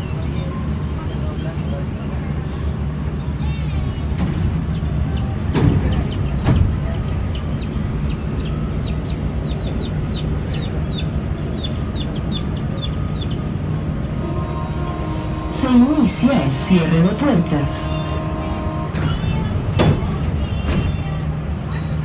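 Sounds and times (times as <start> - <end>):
train running gear rumble: 0.0 - 22.0
loud clunks: 18.9 - 21.1.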